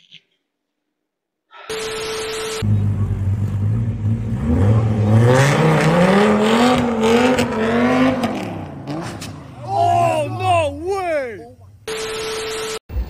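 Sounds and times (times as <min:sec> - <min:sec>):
car engine idling and revving: 0:02.6 - 0:10.8.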